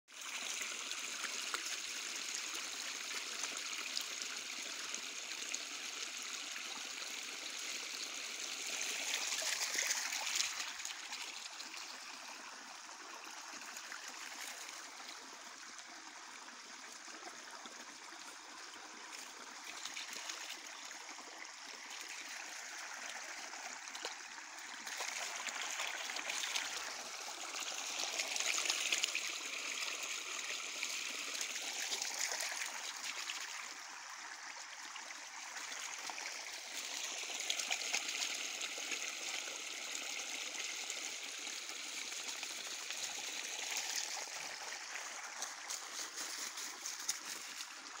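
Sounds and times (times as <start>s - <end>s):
creek babbling over stones: 0.1s - 48.0s.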